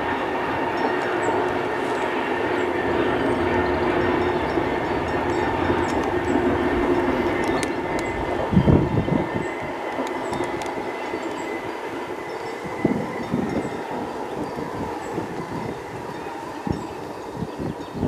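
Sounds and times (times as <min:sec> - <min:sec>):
train wheels rumbling on rails: 0:00.0 - 0:18.0
faint even hum: 0:00.9 - 0:13.7.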